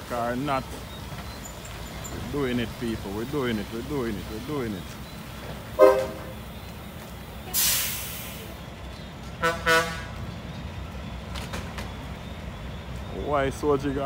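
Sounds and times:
truck engine running: 0.0s - 14.0s
truck horn toots: 5.8s - 6.4s, 9.4s - 10.2s
air brake hiss: 7.5s - 8.6s.

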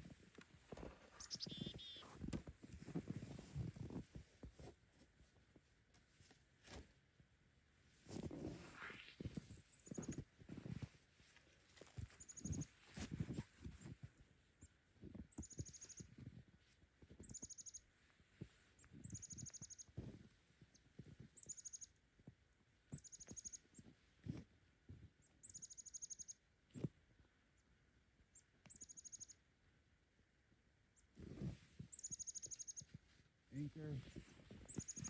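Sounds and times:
crunches in packed snow: 0.0s - 7.0s, 7.8s - 14.1s, 31.2s - 31.9s, 32.8s - 35.0s
songbird trilling: 1.2s - 2.0s, 34.7s - 35.0s.

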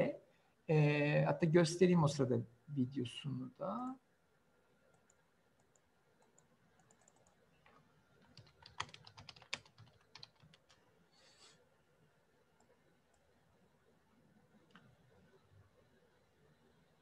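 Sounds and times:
keyboard typing clicks: 4.9s - 10.8s.

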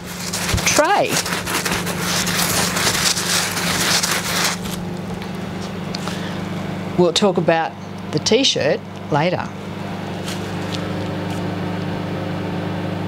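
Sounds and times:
crackling rustle: 0.0s - 6.3s, 9.9s - 11.5s
steady low hum: 0.0s - 13.0s.

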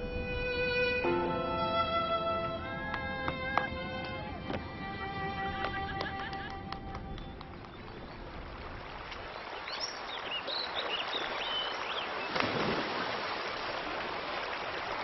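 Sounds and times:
running water: 0.2s - 15.0s
bird chirping: 7.0s - 8.5s.

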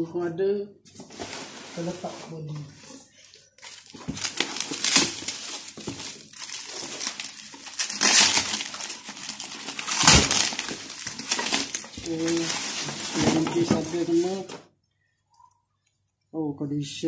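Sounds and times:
plastic wrapping crinkling: 1.2s - 14.6s.

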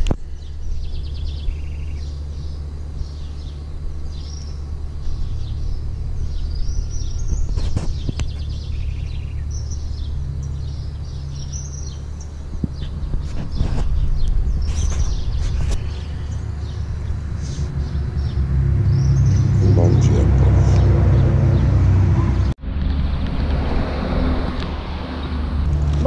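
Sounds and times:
small birds chirping: 0.0s - 22.5s
steady low rumble: 0.0s - 26.0s
bird trills: 0.3s - 19.8s.

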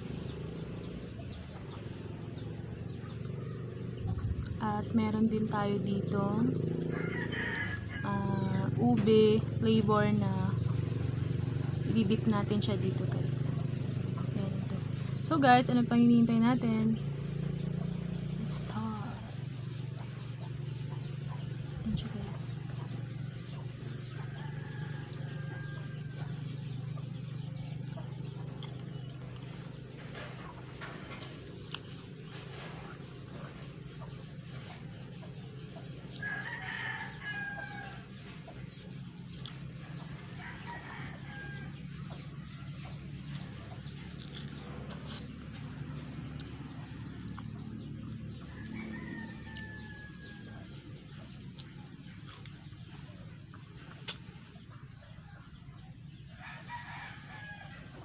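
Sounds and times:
steady low hum: 0.0s - 58.0s
rooster crowing: 6.8s - 8.6s, 24.2s - 26.4s, 35.6s - 38.2s, 40.0s - 42.8s, 48.5s - 50.8s, 56.3s - 58.0s.

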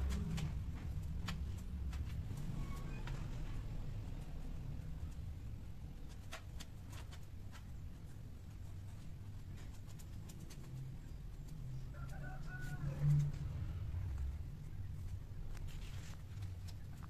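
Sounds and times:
cats scuffling on tiled floor: 0.0s - 17.0s
low hum: 7.8s - 17.0s.

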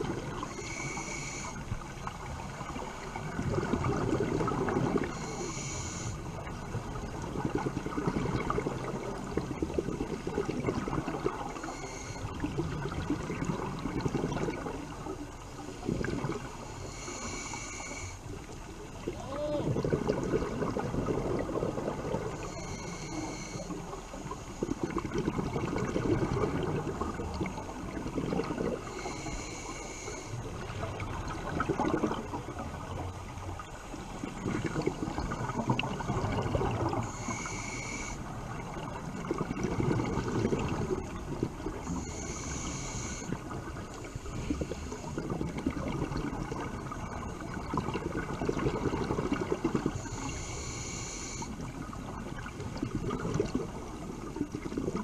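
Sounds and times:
exhaled bubbles rumbling: 0.0s - 17.4s, 18.4s - 50.6s, 51.5s - 55.0s
scuba regulator hissing inhale: 0.4s - 1.9s, 4.4s - 6.4s, 11.4s - 12.5s, 16.3s - 18.5s, 21.9s - 24.9s, 28.7s - 30.7s, 36.8s - 38.4s, 41.7s - 45.4s, 49.8s - 51.8s.

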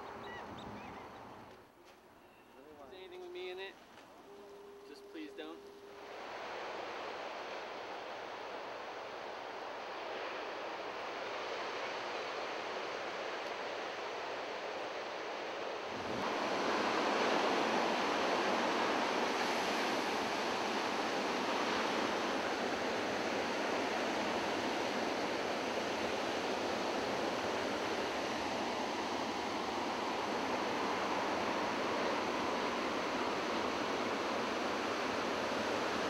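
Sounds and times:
ocean waves breaking: 5.2s - 36.0s.

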